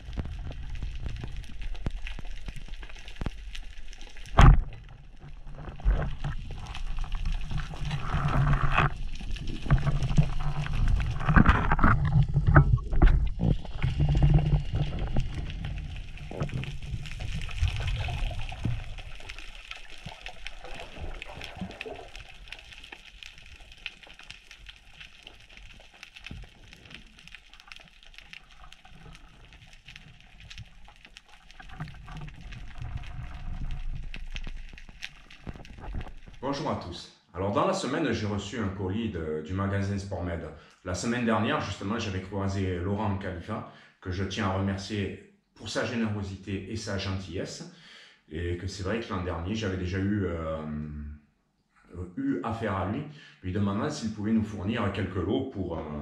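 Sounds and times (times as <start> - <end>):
underwater gurgling and sloshing: 0.0 - 36.8.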